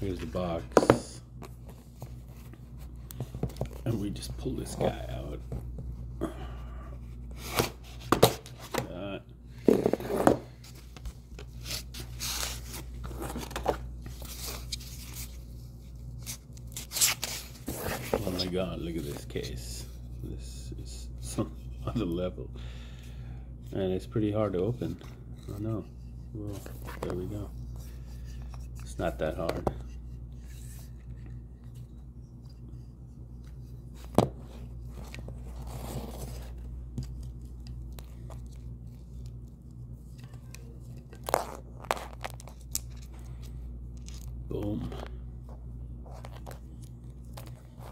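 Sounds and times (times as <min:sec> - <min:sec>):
cardboard and paper rustling: 0:00.0 - 0:05.9, 0:09.7 - 0:19.3, 0:26.4 - 0:29.8, 0:33.8 - 0:43.1
steady low hum: 0:00.0 - 0:47.9.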